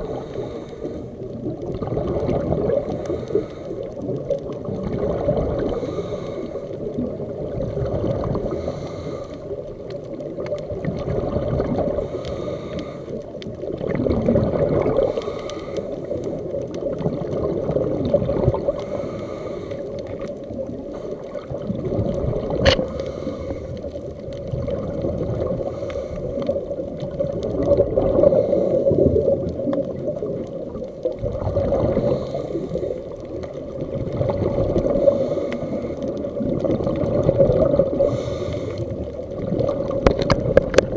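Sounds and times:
muffled underwater rumble: 0:00.0 - 0:40.9
scuba exhaust bubbles: 0:00.0 - 0:40.9
sharp click: 0:22.6 - 0:22.9.

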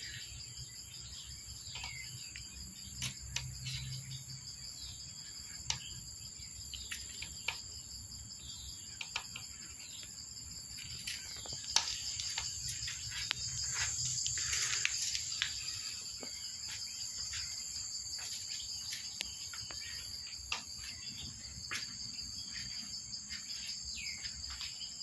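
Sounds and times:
bird chirps: 0:00.0 - 0:25.0
insects trilling: 0:00.0 - 0:25.0.

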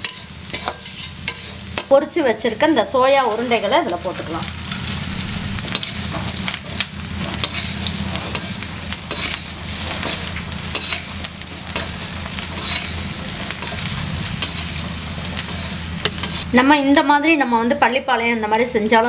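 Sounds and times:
metal ladle scraping a pan: 0:00.0 - 0:01.9, 0:05.6 - 0:16.5
oil sizzling: 0:00.0 - 0:19.0
low hum: 0:03.6 - 0:17.2.

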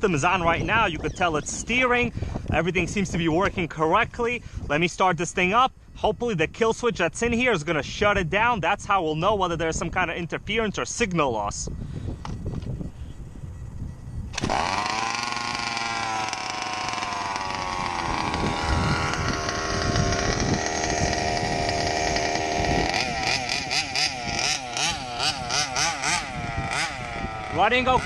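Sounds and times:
two-stroke engine revving: 0:14.3 - 0:28.0.

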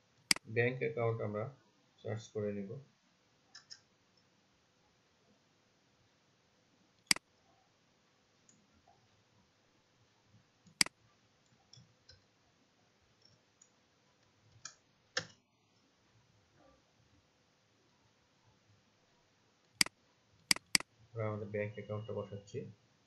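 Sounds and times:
keystrokes: 0:03.5 - 0:03.8, 0:19.8 - 0:20.9
computer mouse clicks: 0:03.5 - 0:03.9, 0:10.7 - 0:12.3, 0:14.5 - 0:15.4, 0:19.7 - 0:20.9.

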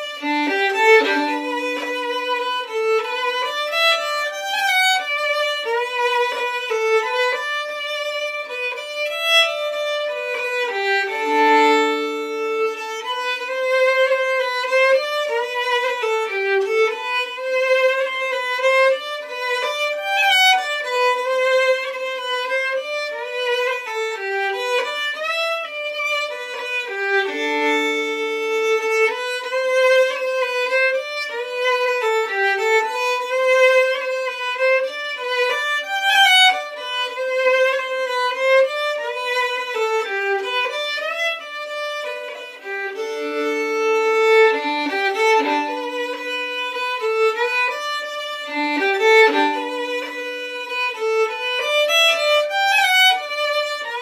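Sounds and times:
solo fiddle waltz: 0:00.0 - 0:54.0.

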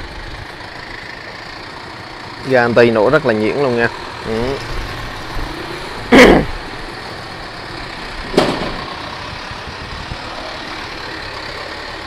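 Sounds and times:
motorcycle engine idling: 0:00.0 - 0:12.0
sharp knock: 0:08.3 - 0:08.8.

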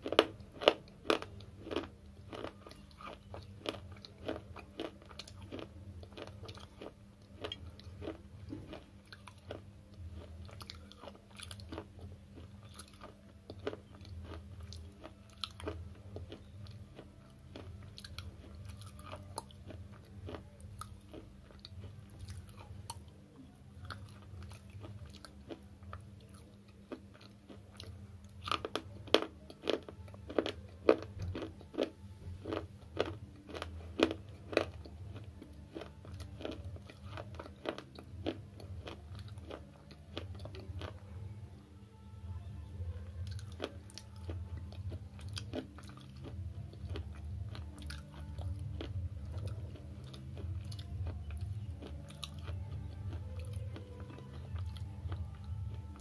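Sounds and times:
crisp chewing crunches: 0:00.0 - 0:41.2, 0:43.0 - 0:56.0
steady low hum: 0:00.0 - 0:56.0.

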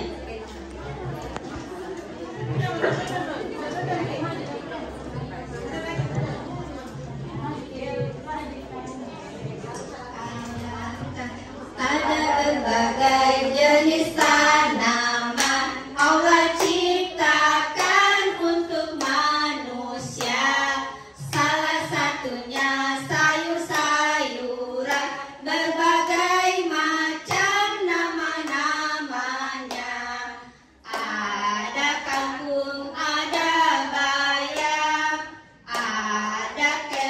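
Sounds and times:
women singing together: 0:02.4 - 0:08.4, 0:09.4 - 0:37.0.

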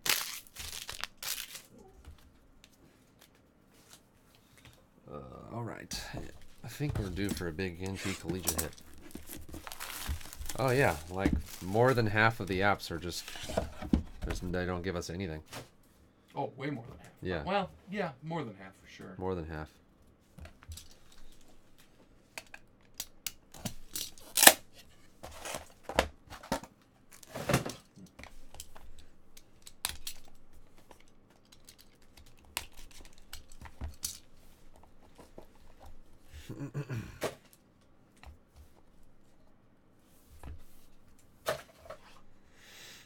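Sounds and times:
cardboard tearing: 0:00.0 - 0:01.7, 0:07.1 - 0:12.4
packaging rustling and clicking: 0:00.0 - 0:01.7, 0:06.3 - 0:12.6.

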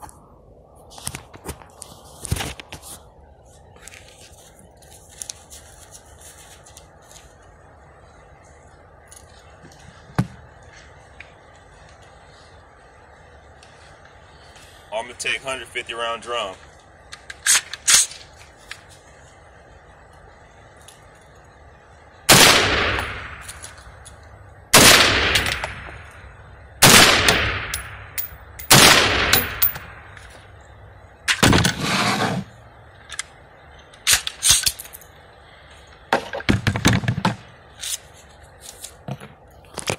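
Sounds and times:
rifle shots echoing indoors: 0:22.3 - 0:23.4, 0:24.8 - 0:25.9, 0:26.8 - 0:27.8, 0:28.7 - 0:29.8.

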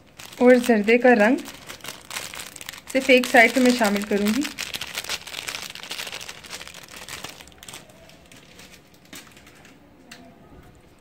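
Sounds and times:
crinkly rustling: 0:00.0 - 0:09.8.

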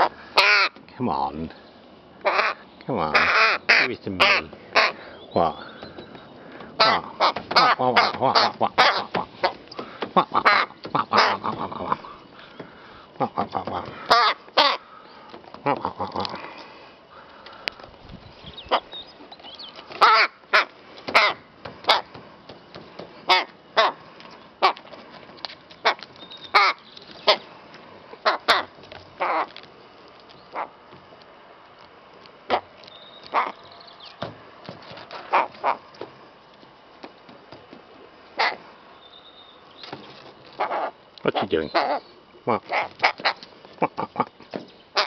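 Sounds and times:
rook cawing: 0:00.0 - 0:01.2, 0:02.2 - 0:17.8, 0:19.8 - 0:22.2, 0:23.2 - 0:24.9, 0:25.8 - 0:27.6, 0:28.2 - 0:29.6, 0:30.5 - 0:30.8, 0:33.3 - 0:33.8, 0:35.2 - 0:36.0, 0:38.3 - 0:38.7, 0:40.5 - 0:44.2.

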